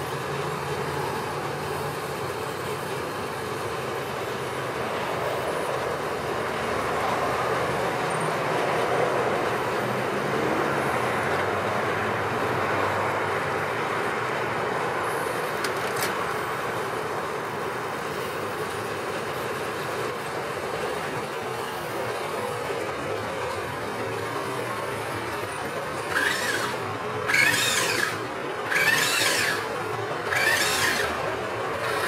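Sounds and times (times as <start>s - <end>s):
electric motor whining: 25.8s - 32.0s.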